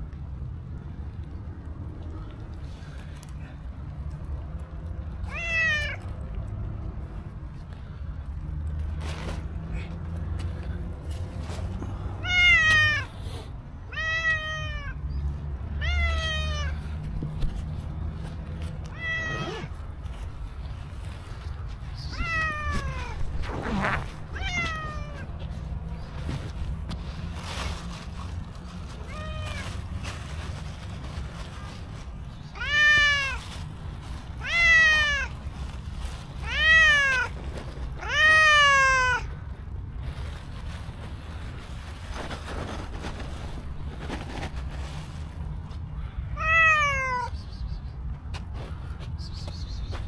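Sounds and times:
cat meowing: 5.2s - 6.1s, 12.2s - 13.1s, 13.9s - 15.1s, 15.8s - 16.9s, 18.8s - 19.8s, 22.1s - 25.4s, 29.0s - 29.8s, 32.5s - 33.4s, 34.4s - 35.4s, 36.4s - 37.4s, 38.0s - 39.3s, 46.3s - 47.4s.

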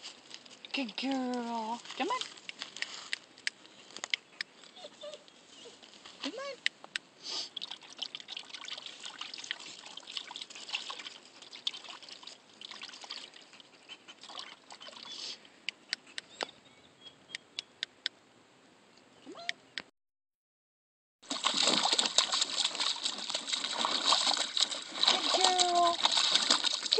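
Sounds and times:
hand splashing water: 21.3s - 26.9s.

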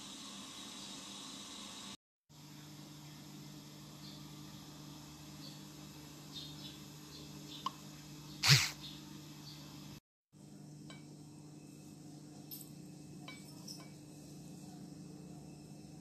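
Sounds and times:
person breathy burst: 8.4s - 8.8s.

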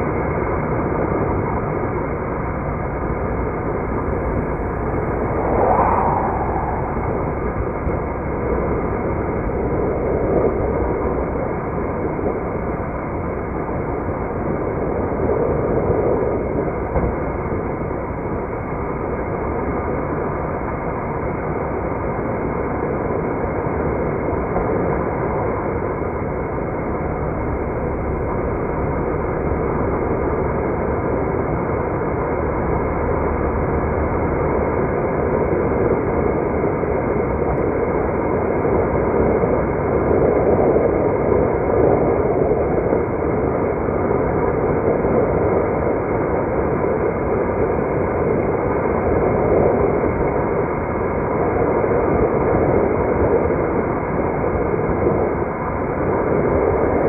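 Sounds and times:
car engine and tyre noise: 1.1s - 20.6s.

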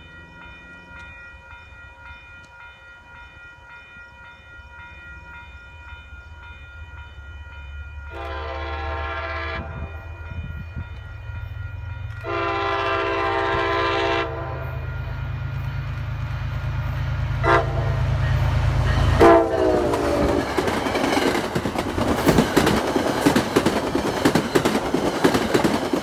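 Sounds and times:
crossing signal bells ringing: 0.0s - 26.0s
diesel locomotive engine rumble: 4.7s - 26.0s
train horn blasts: 8.1s - 10.4s, 12.2s - 15.0s, 17.4s - 20.4s.

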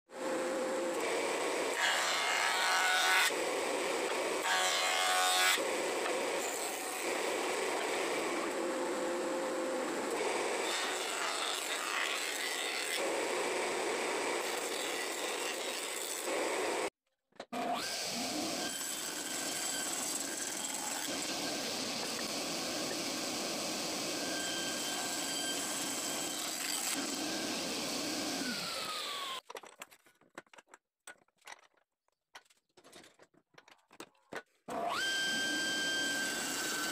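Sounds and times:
electric jointer planing wood: 0.2s - 16.9s, 17.6s - 29.4s, 34.7s - 36.9s
table saw running: 17.6s - 29.4s, 34.7s - 36.9s.

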